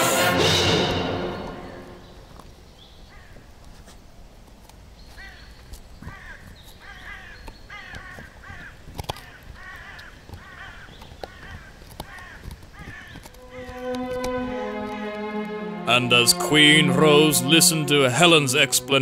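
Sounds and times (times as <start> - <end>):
bird cawing: 3.1 - 3.5, 5.2 - 14.0.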